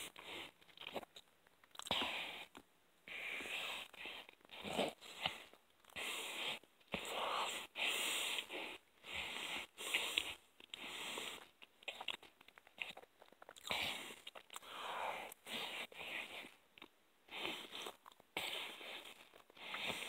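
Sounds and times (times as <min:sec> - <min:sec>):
chewing food: 0:00.0 - 0:02.7, 0:08.6 - 0:20.0
heavy breathing through nose: 0:01.9 - 0:11.6, 0:13.7 - 0:16.6, 0:17.2 - 0:20.0
wet mouth clicks and smacks: 0:11.6 - 0:14.7.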